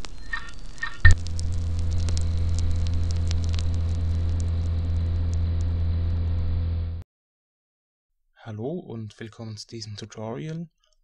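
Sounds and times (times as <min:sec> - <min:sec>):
neon sign switching on crack: 0:00.0 - 0:05.8
low electrical hum with crackles: 0:00.0 - 0:07.0.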